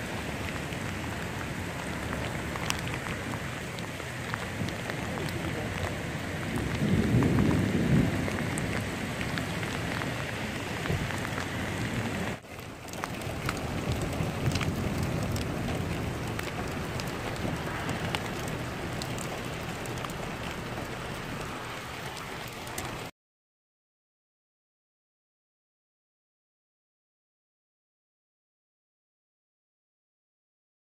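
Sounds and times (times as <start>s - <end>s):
raindrops ticking close by: 0.0s - 23.1s
steady rain falling: 0.0s - 23.1s
low rumble: 13.1s - 21.8s.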